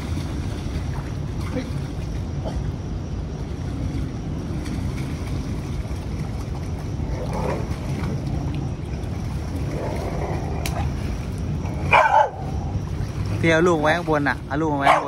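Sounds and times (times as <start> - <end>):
water rushing in concrete channel: 0.0 - 15.0
wind rumbling on microphone: 0.0 - 15.0.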